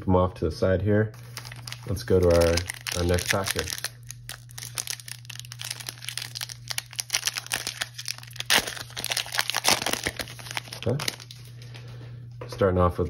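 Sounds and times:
plastic foil wrapper crinkling: 0:01.2 - 0:11.7.

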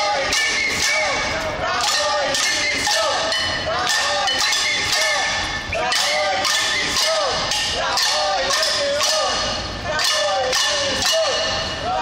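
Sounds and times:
crowd chanting: 0:00.0 - 0:12.0
people clapping: 0:03.8 - 0:11.5.

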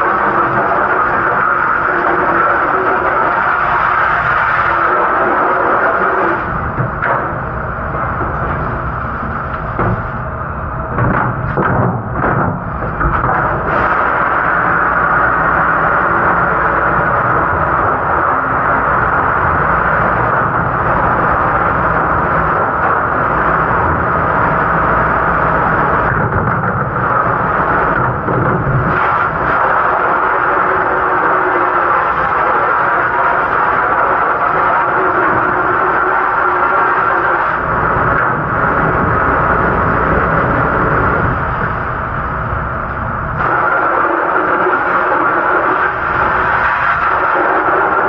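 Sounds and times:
dish machine running: 0:10.9 - 0:41.1.

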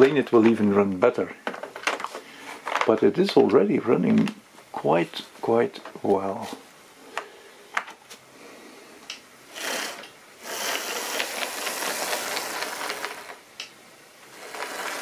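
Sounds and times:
model train rattling on track: 0:14.4 - 0:15.0.

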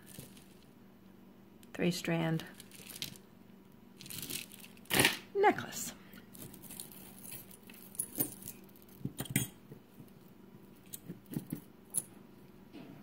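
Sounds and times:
metal chains clinking: 0:06.4 - 0:09.6.

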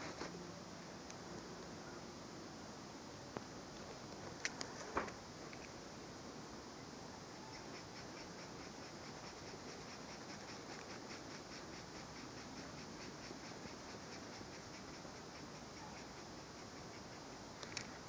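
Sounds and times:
steady hiss: 0:00.0 - 0:18.0
scratching on paper: 0:07.4 - 0:17.4.

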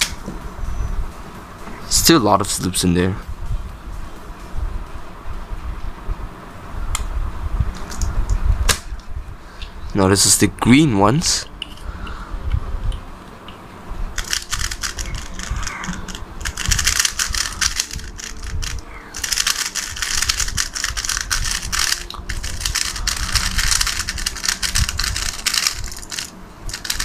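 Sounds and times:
puzzle cube plastic clicking: 0:14.2 - 0:27.0.

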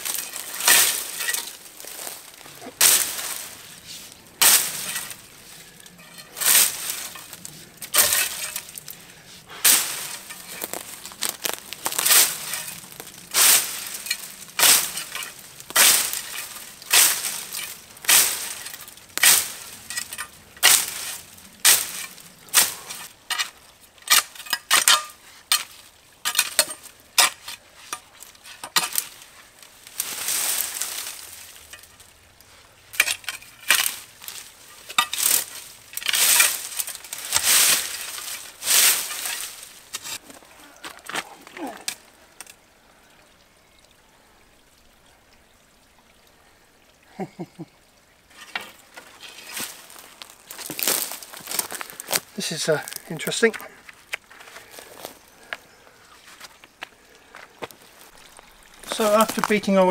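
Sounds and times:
brambles snapping: 0:00.0 - 0:03.7, 0:04.4 - 0:32.2, 0:32.9 - 0:42.6, 0:48.5 - 0:55.6, 0:56.4 - 0:59.9
vegetation rustling dragged: 0:00.0 - 0:20.0, 0:27.8 - 0:31.6, 0:33.8 - 0:40.5, 0:49.1 - 0:53.5.

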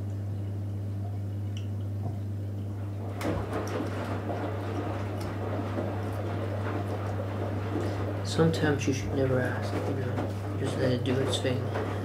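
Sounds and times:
washing machine humming: 0:00.0 - 0:12.0
water splashing in drum: 0:02.8 - 0:12.0.

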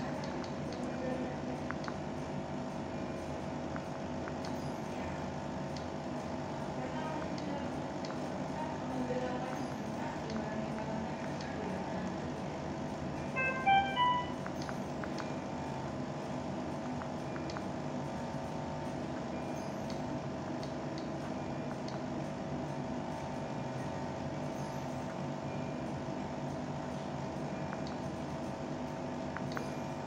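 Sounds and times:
mechanical hum: 0:00.0 - 0:30.0
faint high beeps: 0:13.3 - 0:15.4, 0:29.4 - 0:30.0.

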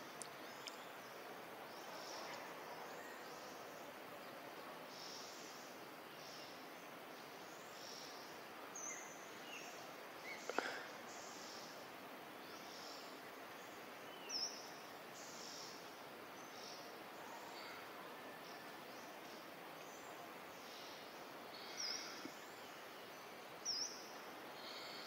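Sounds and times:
soft steady hiss: 0:00.0 - 0:25.0.

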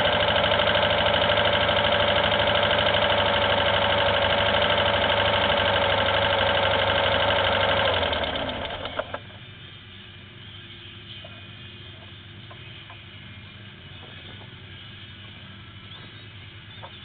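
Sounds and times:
engine shutting off with clicks: 0:00.0 - 0:09.4
engine idling: 0:00.0 - 0:17.0.

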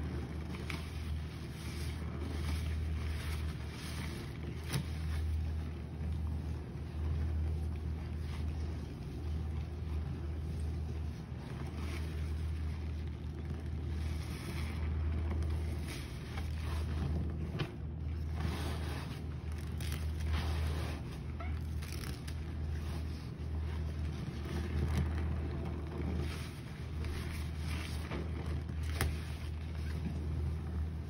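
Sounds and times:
cloth squelching in suds: 0:00.0 - 0:31.0
steady low rumble: 0:00.0 - 0:31.0.

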